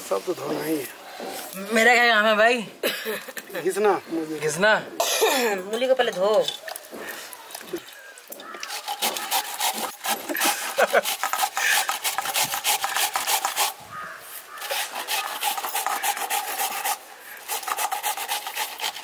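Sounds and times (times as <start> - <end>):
radish grated on metal grater: 8.6 - 13.8, 14.6 - 19.0.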